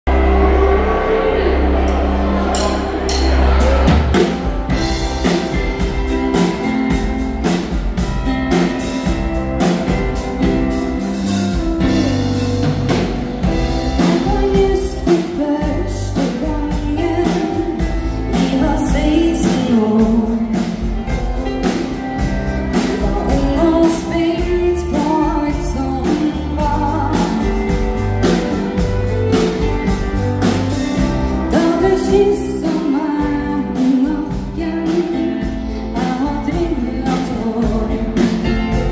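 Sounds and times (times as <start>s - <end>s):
dance band playing: 0.1s - 38.9s
woman singing: 13.5s - 21.2s, 22.7s - 29.6s, 31.0s - 38.9s.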